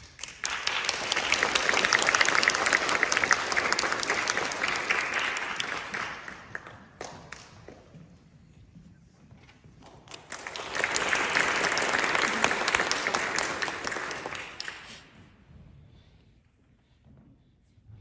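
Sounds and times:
audience applauding: 0:00.0 - 0:07.8, 0:10.1 - 0:15.2.

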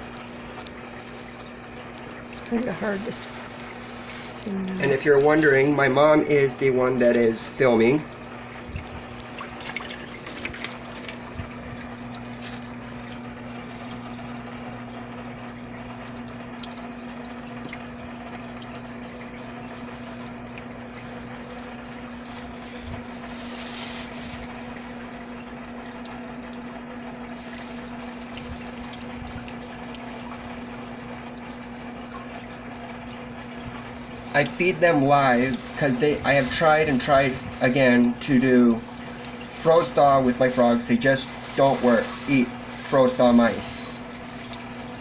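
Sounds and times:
water pump humming: 0:00.0 - 0:45.0
water trickling: 0:00.0 - 0:45.0.

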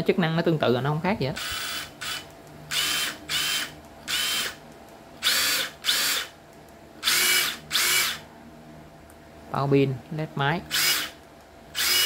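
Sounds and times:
impact driver motor whine: 0:01.4 - 0:04.6, 0:05.2 - 0:06.3, 0:07.0 - 0:08.2, 0:10.7 - 0:12.0.

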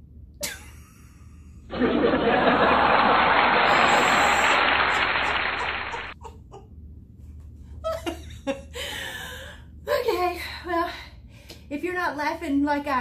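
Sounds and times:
canned applause: 0:01.9 - 0:06.2
woman laughing: 0:03.6 - 0:06.7, 0:07.8 - 0:08.9.

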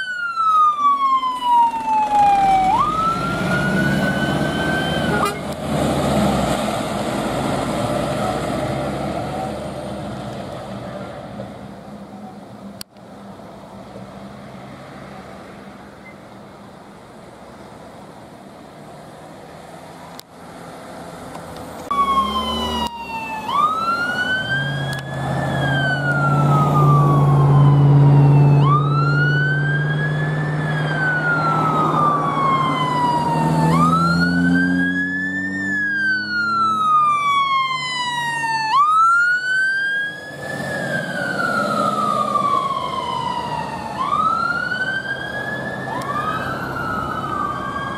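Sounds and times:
fire engine wail siren: 0:00.0 - 0:10.0, 0:21.9 - 0:47.9
truck engine rumble: 0:00.0 - 0:47.9.

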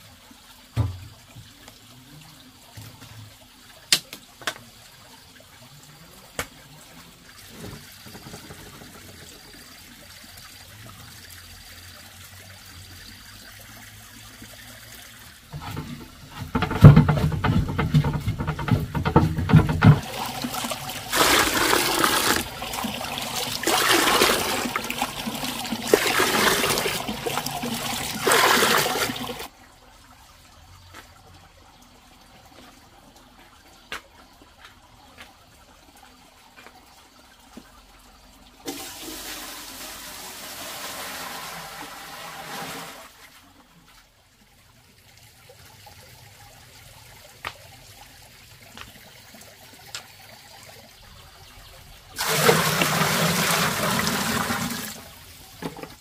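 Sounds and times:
water pouring: 0:00.0 - 0:56.0
small knocks: 0:15.6 - 0:20.1.

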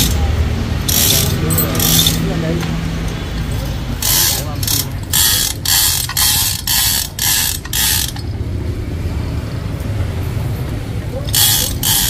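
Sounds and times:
steel chain clattering through hoist: 0:00.8 - 0:02.3, 0:03.4 - 0:08.3, 0:11.2 - 0:12.0.

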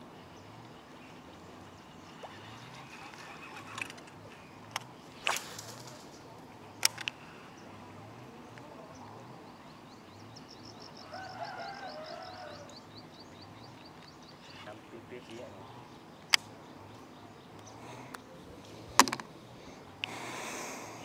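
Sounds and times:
bird trilling: 0:10.8 - 0:15.5.

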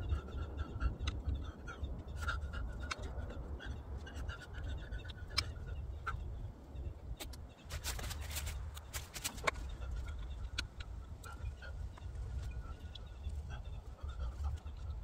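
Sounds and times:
faint bird calls: 0:00.0 - 0:15.0.

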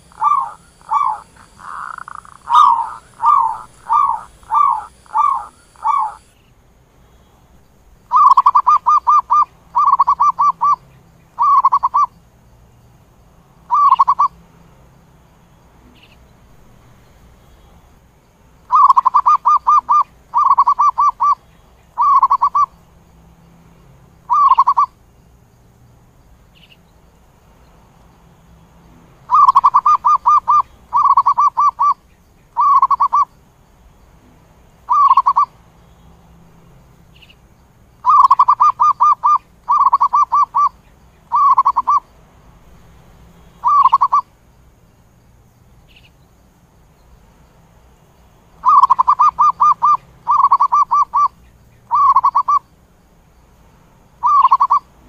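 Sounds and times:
dove cooing: 0:00.0 - 0:06.3, 0:08.1 - 0:10.8, 0:11.4 - 0:12.1, 0:13.7 - 0:14.3, 0:18.7 - 0:21.4, 0:22.0 - 0:22.7, 0:24.3 - 0:24.9, 0:29.3 - 0:32.0, 0:32.6 - 0:33.3, 0:34.9 - 0:35.5, 0:38.0 - 0:42.0, 0:43.6 - 0:44.3, 0:48.6 - 0:52.6, 0:54.2 - 0:54.9.

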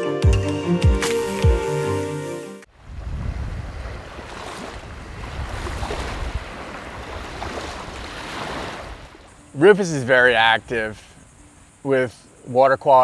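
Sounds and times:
music: 0:00.0 - 0:02.7, 0:09.2 - 0:13.0
waves breaking on shore: 0:02.7 - 0:09.5.

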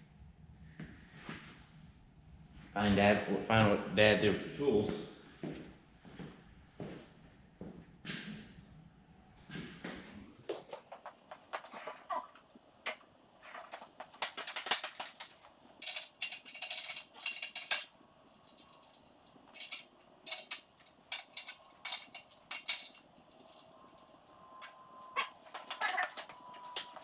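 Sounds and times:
knocks and scuffs: 0:09.4 - 0:12.1
metal hand tools clinking: 0:13.5 - 0:27.0.

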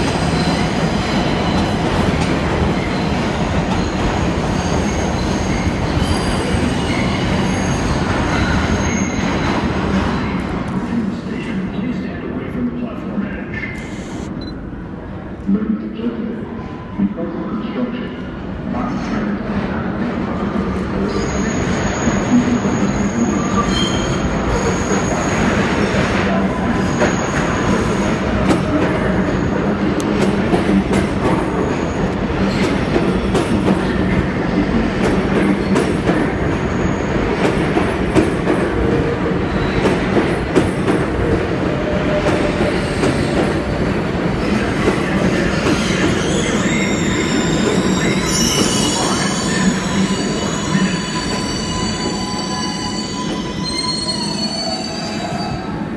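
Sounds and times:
subway train wheels rumbling: 0:00.0 - 0:55.9
train brakes squealing: 0:02.8 - 0:09.6, 0:21.0 - 0:25.6, 0:26.7 - 0:28.1, 0:45.4 - 0:55.8.

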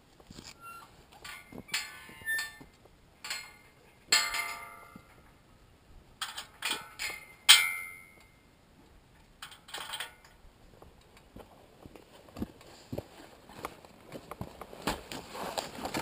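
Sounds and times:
metallic clinks and knocks: 0:01.2 - 0:05.4, 0:06.2 - 0:08.4, 0:09.4 - 0:10.4.

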